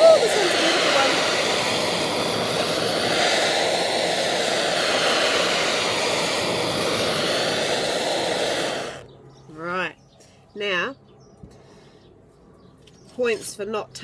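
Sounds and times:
blowtorch flame hissing: 0.0 - 9.1.

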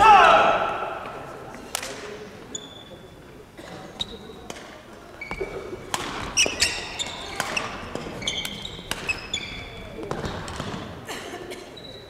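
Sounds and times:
shoes squeaking on court floor: 2.4 - 11.0, 11.7 - 12.0
rackets striking shuttlecock: 4.5 - 10.8.

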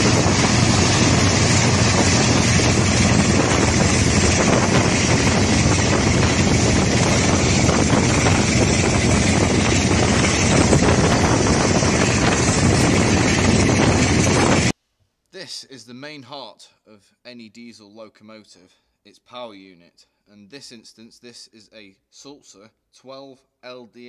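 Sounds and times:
diesel locomotive running: 0.0 - 14.7
wind rushing over microphone: 0.0 - 14.7.

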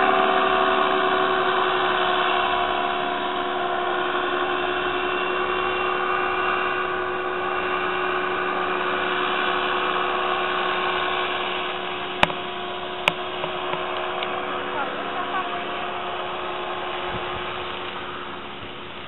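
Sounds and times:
paramotor engine droning overhead: 0.0 - 19.0.

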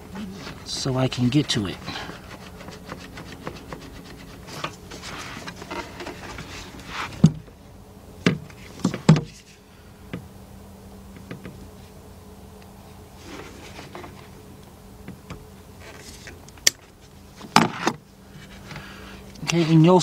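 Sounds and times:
gloved hands rustling plastic: 0.2 - 7.2.

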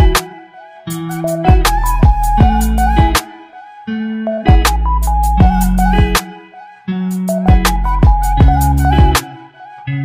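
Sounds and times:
plucked melody with bass and drums: 0.0 - 0.3, 0.9 - 3.3, 4.0 - 6.3, 7.0 - 9.5.

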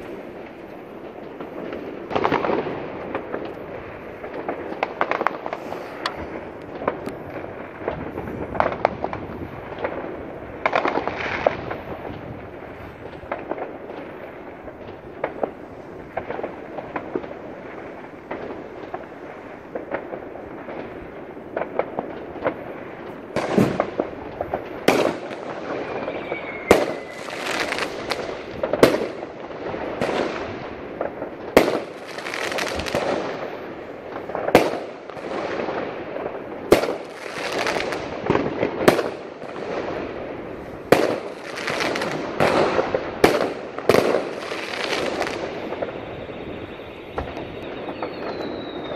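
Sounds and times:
firecrackers crackling: 0.0 - 48.9
loud firework bangs: 0.0 - 48.9
firework whistle: 24.8 - 29.2, 41.2 - 48.9.

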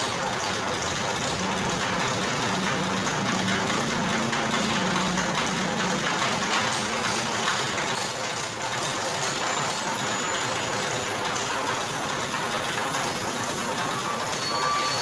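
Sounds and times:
sugarcane crushing machine running: 0.0 - 15.0.

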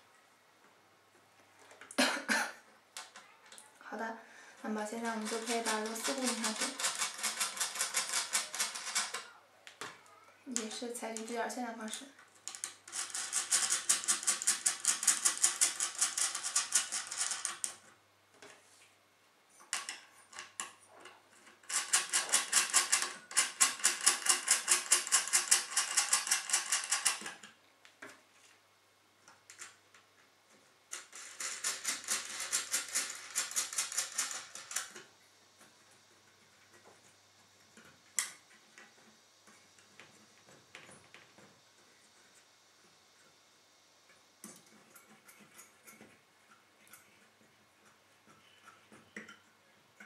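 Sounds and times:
fast clicking of screws tightened: 5.2 - 9.2, 12.5 - 17.8, 21.5 - 27.5, 30.9 - 35.0.

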